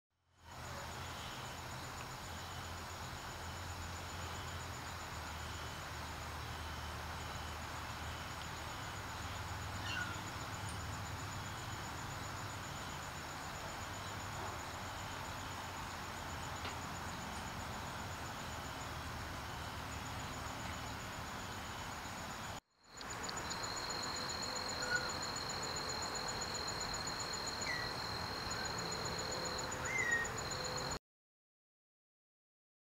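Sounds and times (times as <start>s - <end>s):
steady hiss: 0.5s - 29.9s
bird chirps: 24.7s - 25.2s, 27.6s - 28.8s, 29.7s - 30.4s.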